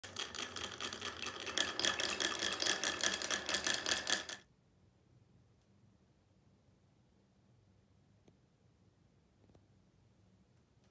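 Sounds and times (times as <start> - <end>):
marbles clattering down wooden track: 0.0 - 4.4.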